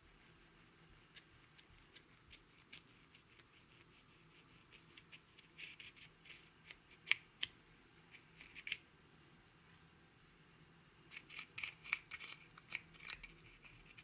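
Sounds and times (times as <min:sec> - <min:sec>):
spatula scratching eyeshadow: 0:00.0 - 0:07.1, 0:11.1 - 0:14.0.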